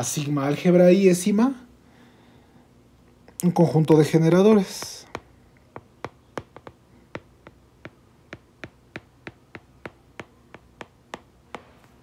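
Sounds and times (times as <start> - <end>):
stylus tapping on tablet screen: 4.6 - 12.0.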